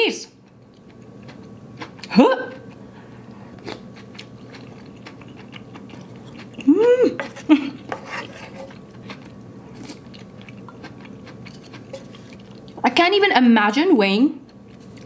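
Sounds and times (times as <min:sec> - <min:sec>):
closed-mouth hum: 0:00.0 - 0:07.9
person chewing noodles: 0:00.5 - 0:12.8, 0:14.4 - 0:15.0.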